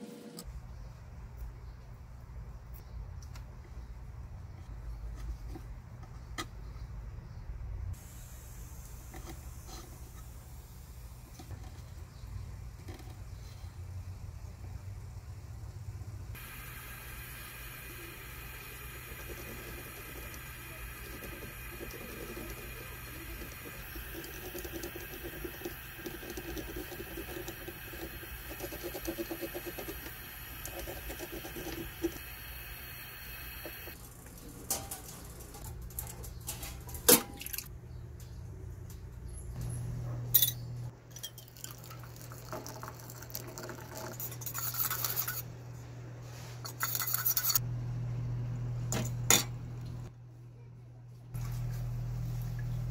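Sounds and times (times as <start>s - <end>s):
gas torch flame hissing: 8.0s - 11.2s, 16.4s - 34.0s.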